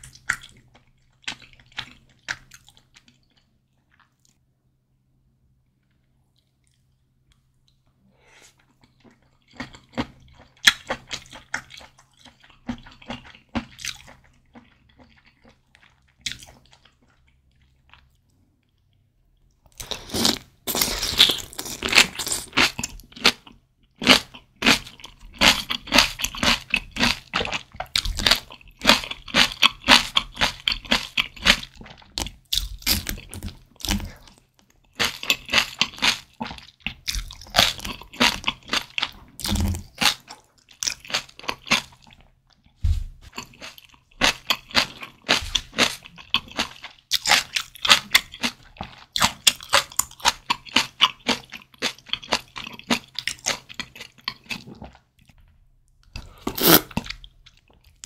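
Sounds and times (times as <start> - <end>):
person chewing crunchy food: 0.0 - 4.4, 5.8 - 55.4, 56.0 - 58.0.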